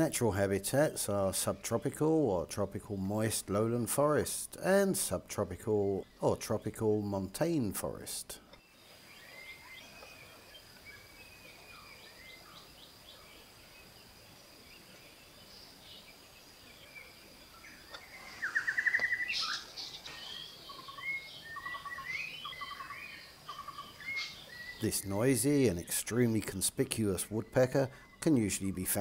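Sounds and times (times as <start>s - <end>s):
birds chirping and whistling: 8.9s - 14.0s, 16.8s - 29.0s.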